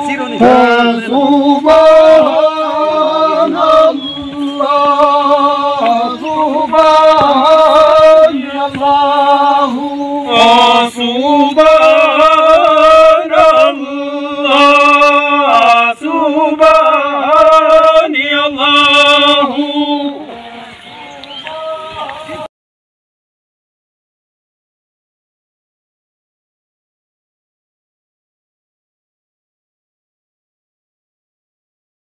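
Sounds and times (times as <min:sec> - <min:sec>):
men singing a chant: 0:00.0 - 0:22.5.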